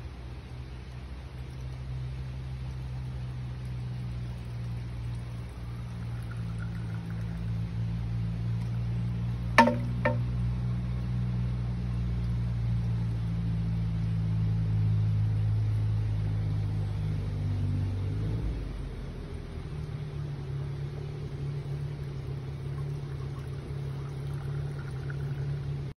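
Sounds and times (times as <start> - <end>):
running water pouring: 0.5 - 10.2, 19.6 - 25.9
bamboo tube clacking on stone: 9.6 - 10.3.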